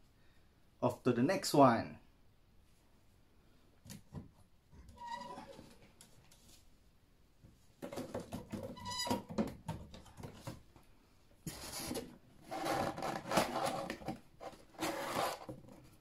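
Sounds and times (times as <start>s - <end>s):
box rustling and scraping: 11.4s - 16.0s.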